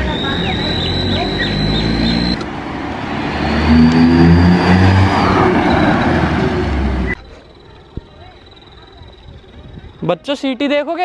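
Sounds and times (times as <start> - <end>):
exhaust whistle: 0.0 - 2.4, 3.3 - 7.3
car engine revving: 0.0 - 7.2.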